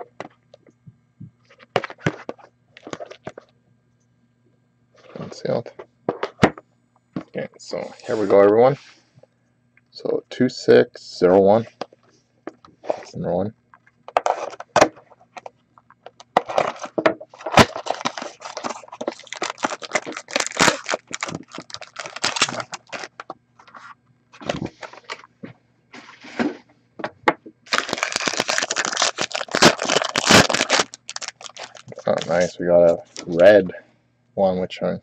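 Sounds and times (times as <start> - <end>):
packaging crinkling: 14.1 - 25.2, 27.7 - 32.5
cardboard packaging tearing: 16.4 - 23.8, 27.7 - 32.5.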